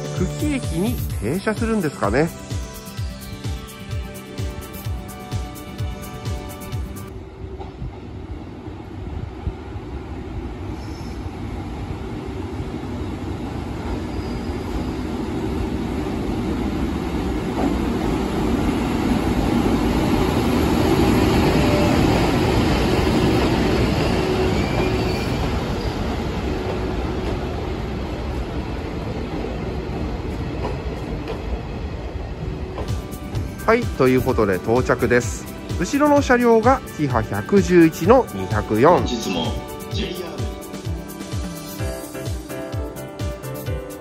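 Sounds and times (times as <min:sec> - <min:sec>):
train wheels rumbling on rail: 0:05.9 - 0:39.1.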